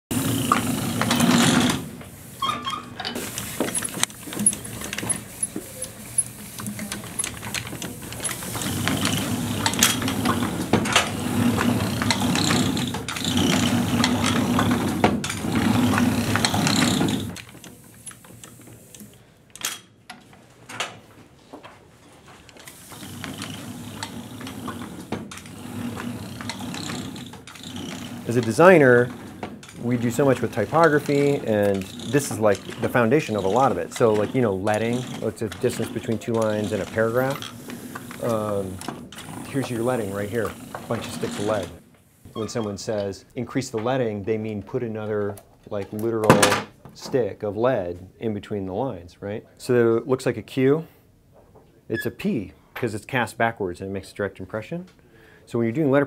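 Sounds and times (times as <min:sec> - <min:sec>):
printing press rumbling: 0:00.0 - 0:19.0, 0:22.6 - 0:44.2
carriage and rollers clattering: 0:00.1 - 0:41.8.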